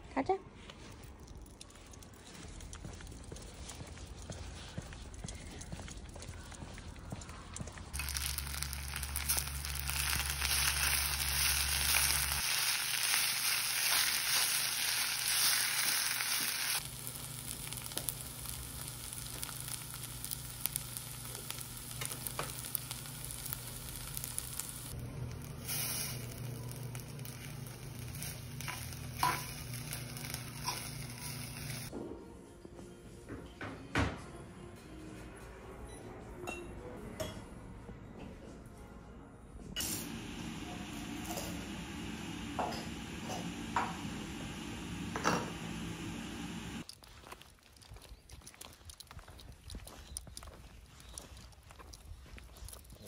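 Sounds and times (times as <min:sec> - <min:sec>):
rice sizzling in hot bowl: 0:07.9 - 0:31.9, 0:39.8 - 0:46.9.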